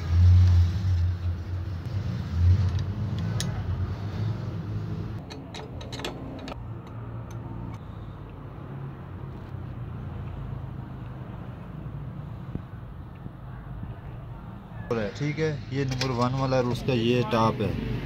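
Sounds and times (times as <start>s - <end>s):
metal parts clicking on bench: 5.2s - 7.8s.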